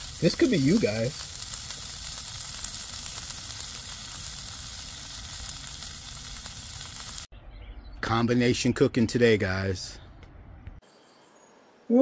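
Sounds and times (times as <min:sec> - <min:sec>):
taco sizzling on griddle: 0:00.0 - 0:07.3.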